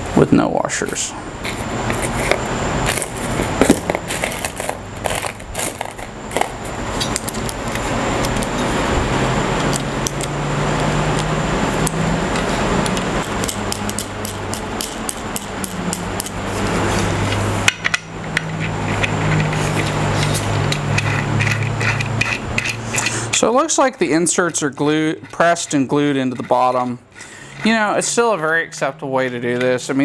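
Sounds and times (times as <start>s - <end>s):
packaging wrap crinkling: 2.9s - 6.5s.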